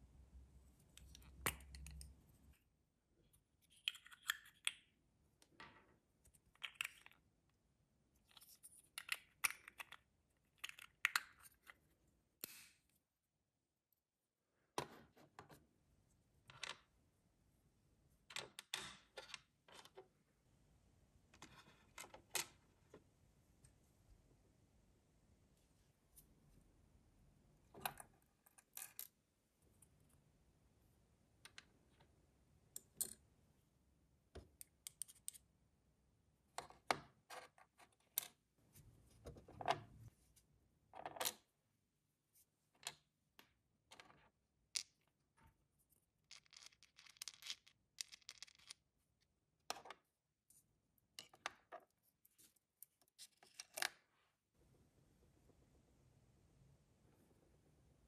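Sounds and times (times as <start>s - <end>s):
plastic pieces clicking and tapping: 6.3s - 7.2s, 8.4s - 11.8s.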